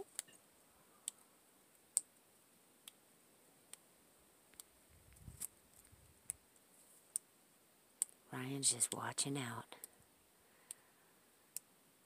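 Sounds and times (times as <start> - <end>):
faint sharp clicks: 4.5 - 6.4, 10.6 - 10.8, 11.5 - 11.7.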